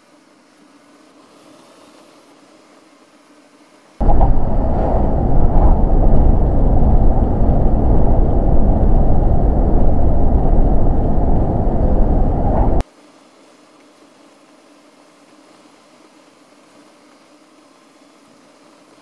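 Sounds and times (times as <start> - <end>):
vehicle road and engine rumble: 4.0 - 12.8.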